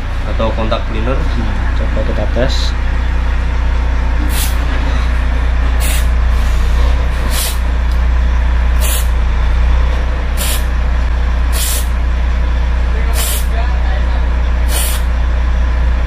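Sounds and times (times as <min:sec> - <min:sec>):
steady low drone: 0:00.0 - 0:16.0
aerosol spray hissing bursts: 0:04.3 - 0:04.6, 0:05.8 - 0:06.1, 0:07.3 - 0:07.6, 0:08.8 - 0:09.1, 0:10.4 - 0:10.7, 0:11.6 - 0:11.9, 0:13.2 - 0:13.5, 0:14.7 - 0:15.1.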